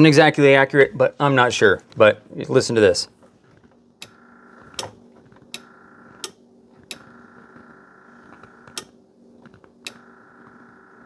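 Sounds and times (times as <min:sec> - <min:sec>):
fuel pump humming: 0:03.9 - 0:09.0.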